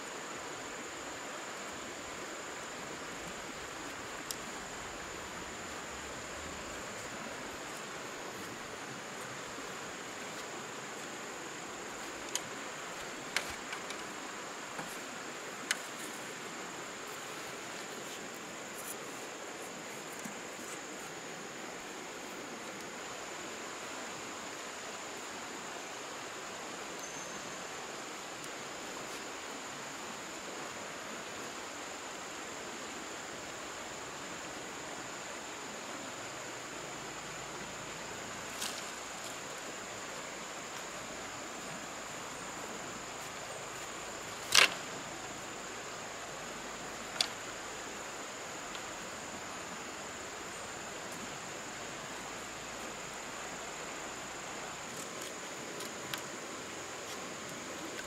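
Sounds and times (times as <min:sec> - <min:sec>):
running water rushing: 0:00.0 - 0:27.0
high insect drone: 0:00.0 - 0:58.0.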